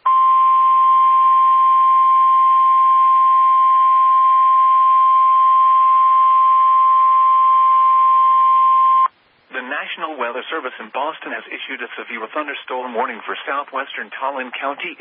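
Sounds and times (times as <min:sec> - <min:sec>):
steady high alarm tone: 0:00.0 - 0:09.1.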